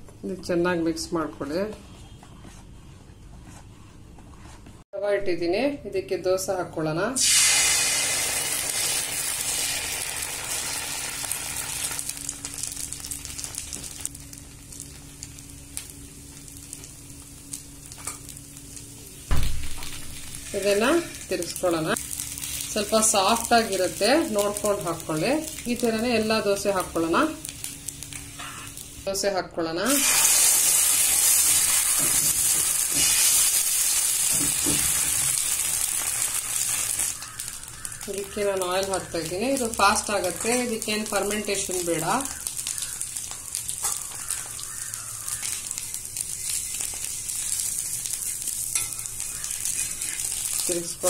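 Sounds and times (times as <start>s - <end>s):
batter sizzling on hot pan: 7.2s - 29.3s, 29.9s - 51.0s
pops and crackles: 34.3s - 48.4s.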